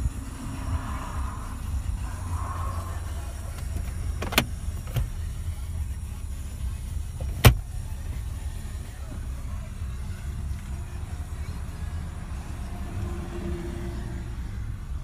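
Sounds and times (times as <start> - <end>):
car engine idling: 0.0 - 15.0
glove box clicks: 3.6 - 5.2, 7.2 - 7.6.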